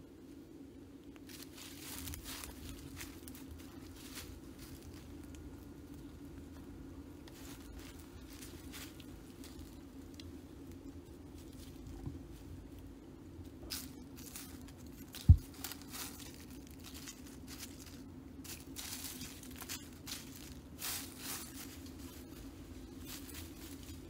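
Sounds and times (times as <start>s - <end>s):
dry leaves and twigs crackling: 0.9s - 24.0s
dull thud: 15.2s - 15.6s.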